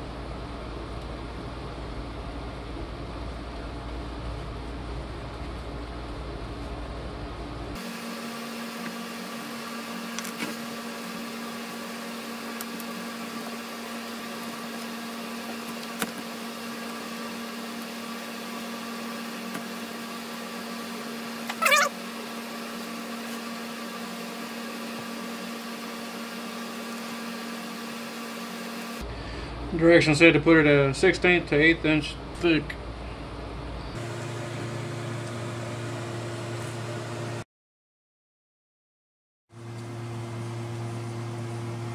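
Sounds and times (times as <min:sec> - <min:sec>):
wavering high-pitched cry: 0:21.5 - 0:22.0.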